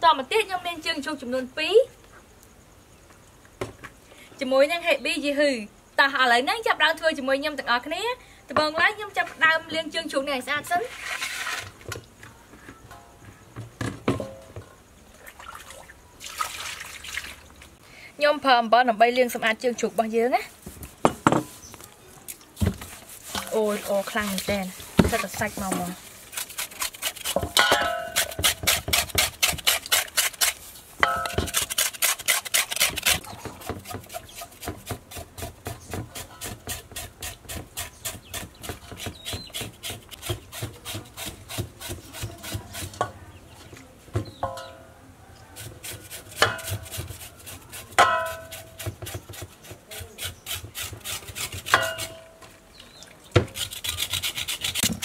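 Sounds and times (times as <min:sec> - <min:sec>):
knife scraping skin: 0:22.9 - 0:33.2, 0:45.6 - 0:52.2, 0:53.4 - 0:55.0
metal basin ringing: 0:27.5 - 0:28.3, 0:31.0 - 0:31.5, 0:44.4 - 0:45.0, 0:48.0 - 0:48.5, 0:51.8 - 0:52.4.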